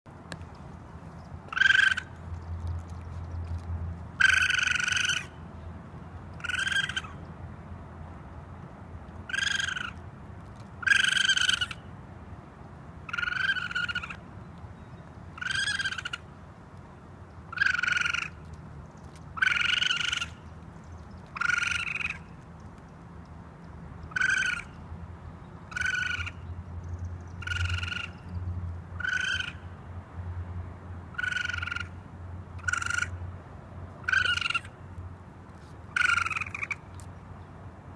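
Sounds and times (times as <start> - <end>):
raccoon calling: 1.5 - 2.2, 4.2 - 5.4, 6.4 - 7.2, 9.3 - 10.0, 10.8 - 11.9, 13.1 - 14.2, 15.3 - 16.4, 17.5 - 18.5, 19.3 - 20.5, 21.2 - 22.4, 24.1 - 24.8, 25.7 - 26.5, 27.3 - 28.3, 29.0 - 29.7, 31.1 - 32.0, 32.6 - 33.2, 34.0 - 34.8, 35.9 - 37.1.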